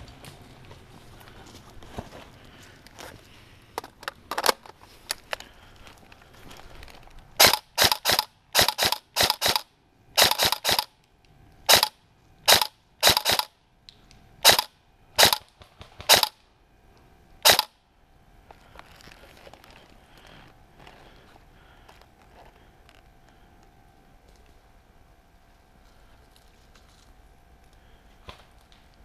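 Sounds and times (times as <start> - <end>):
airsoft rifle shots: 7.4 - 10.9, 11.7 - 13.6, 14.4 - 16.4, 17.4 - 17.8.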